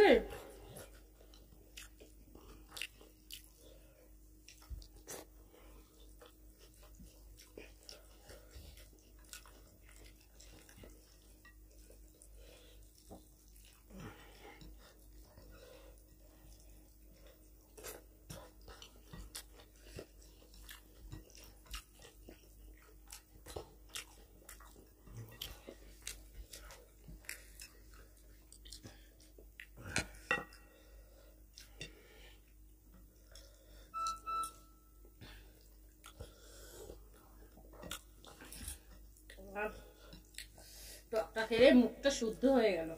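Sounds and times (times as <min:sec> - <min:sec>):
faint chewing: 0:00.3 - 0:42.9.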